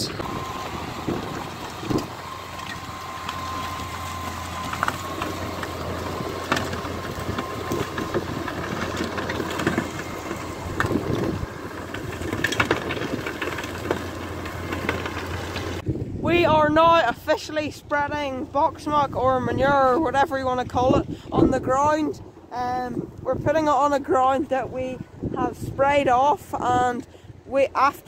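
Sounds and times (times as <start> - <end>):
steady whine: 0.0 - 20.8
tractor running under load: 0.0 - 28.0.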